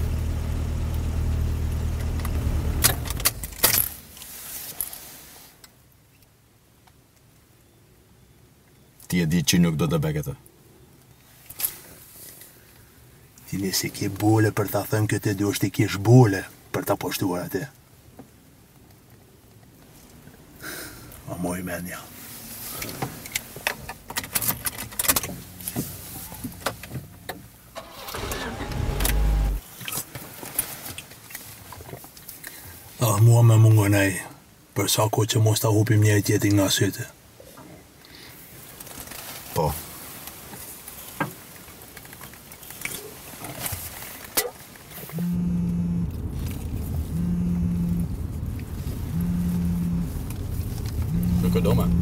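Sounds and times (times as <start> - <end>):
car engine idling: 0.0 - 3.8, 22.3 - 29.6, 45.1 - 52.0.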